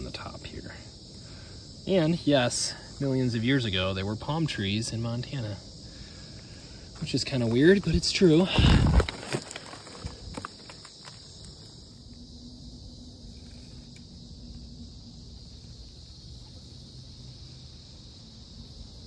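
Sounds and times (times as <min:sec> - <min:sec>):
insects humming: 0:00.0 - 0:19.0
footsteps on gravel: 0:06.9 - 0:11.8.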